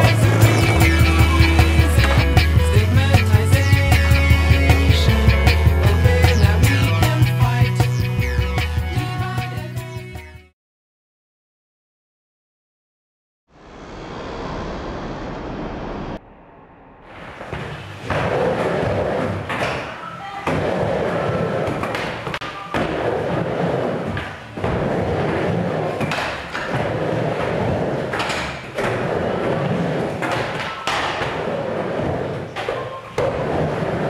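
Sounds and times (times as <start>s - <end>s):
skateboard wheels rolling: 0.0s - 7.4s, 17.1s - 34.0s
skateboard slapping down: 17.5s - 34.0s.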